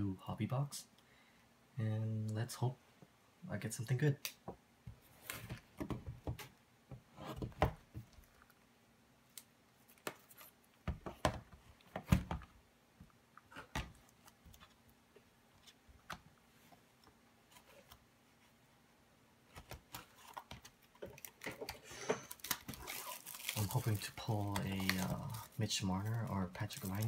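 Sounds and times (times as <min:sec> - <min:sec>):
plastic shrink-wrap crinkling: 0:20.1 - 0:27.0.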